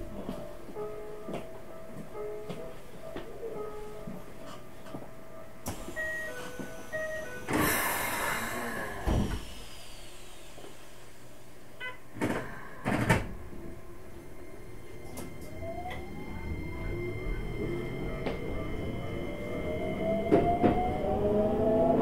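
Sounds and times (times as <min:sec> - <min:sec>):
train doors closing with air hiss: 0:05.6 - 0:13.8, 0:19.9 - 0:21.4
train motor whine: 0:12.8 - 0:22.0.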